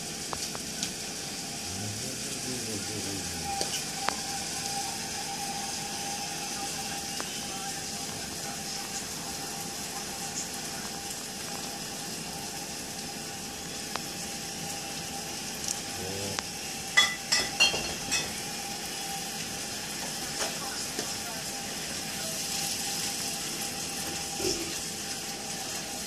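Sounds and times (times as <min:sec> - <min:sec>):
faint hum: 0:01.4 - 0:11.1.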